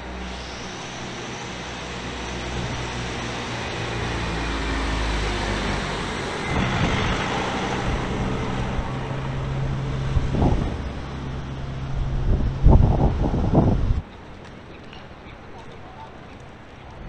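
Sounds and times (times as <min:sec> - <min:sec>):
van diesel engine passing: 0:00.0 - 0:14.0
tyres on brick paving: 0:00.0 - 0:17.0.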